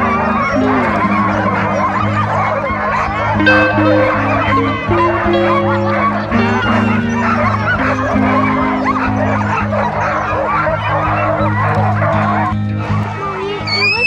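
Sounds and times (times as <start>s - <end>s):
background music with held notes: 0.0s - 14.0s
sled dogs barking and yipping: 0.0s - 14.0s.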